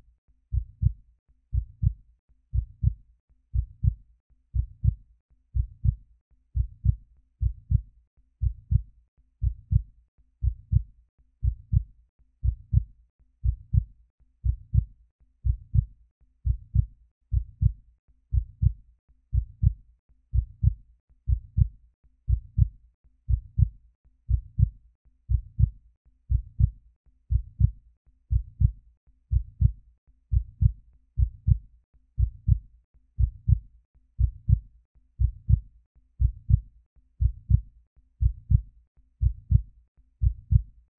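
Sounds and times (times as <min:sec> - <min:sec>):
heartbeat thumping: 0:00.5 - 0:03.0, 0:03.6 - 0:04.0, 0:04.6 - 0:05.0, 0:05.6 - 0:06.0, 0:06.6 - 0:21.7, 0:22.3 - 0:22.7, 0:23.3 - 0:23.7, 0:24.3 - 0:31.6, 0:32.2 - 0:32.6, 0:33.2 - 0:33.6, 0:34.2 - 0:34.6, 0:35.2 - 0:35.6, 0:36.2 - 0:36.6, 0:37.2 - 0:38.6, 0:39.2 - 0:40.7.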